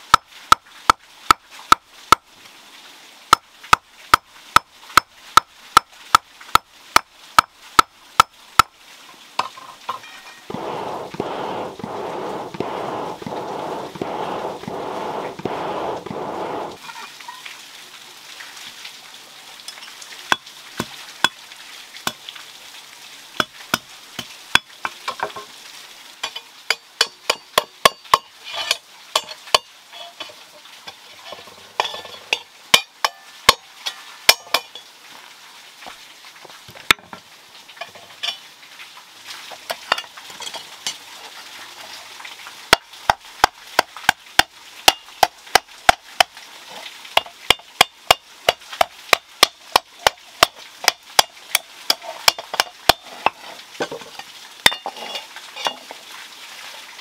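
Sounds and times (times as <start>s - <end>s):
hammer striking hot iron: 10.5s - 16.8s.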